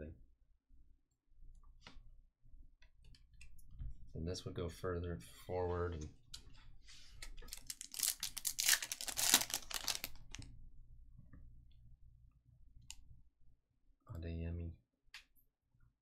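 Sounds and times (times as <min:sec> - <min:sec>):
cards clicking and rustling: 0:07.2 - 0:10.4
foil wrapper tearing and crinkling: 0:07.4 - 0:10.4.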